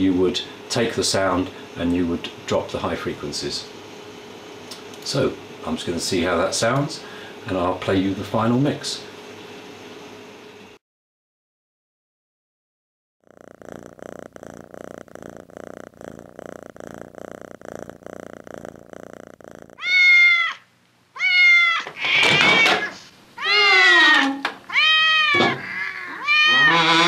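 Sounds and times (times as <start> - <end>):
cat meowing loudly: 19.8 - 20.6, 21.2 - 27.0.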